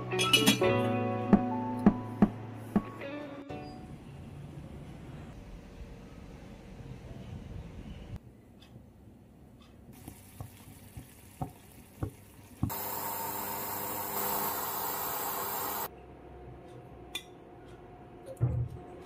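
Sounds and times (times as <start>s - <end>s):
curry simmering with pops: 9.9s - 12.8s
steam hissing from steamer: 12.7s - 15.9s.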